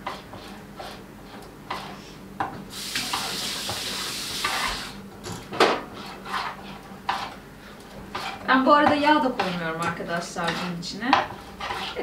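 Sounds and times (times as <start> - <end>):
whisk stirring in a steel pot: 0.0 - 2.0, 3.0 - 4.9, 5.9 - 12.0
kitchen tap running: 2.7 - 5.0.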